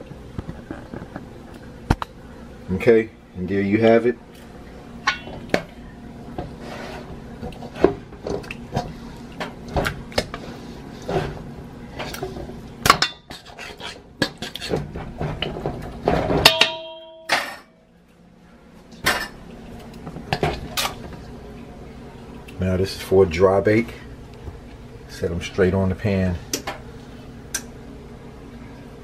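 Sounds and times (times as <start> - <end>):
metal clank: 5.0 - 5.6, 16.1 - 17.8.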